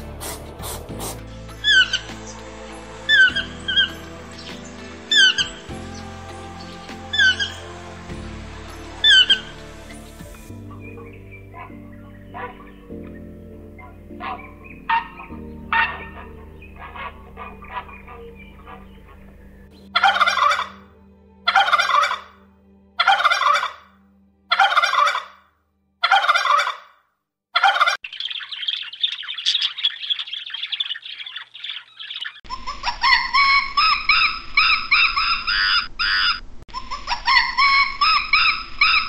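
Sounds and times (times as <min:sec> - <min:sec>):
turkey gobbling: 0:01.6 - 0:02.1, 0:03.1 - 0:04.5, 0:05.1 - 0:05.7, 0:11.0 - 0:12.8, 0:13.8 - 0:20.8, 0:21.5 - 0:22.4, 0:23.0 - 0:23.9, 0:24.5 - 0:25.4, 0:26.0 - 0:26.9, 0:27.6 - 0:39.0
animal squealing: 0:11.5 - 0:12.7, 0:14.2 - 0:20.8, 0:21.5 - 0:22.3, 0:23.0 - 0:23.8, 0:24.5 - 0:25.4, 0:28.6 - 0:39.0.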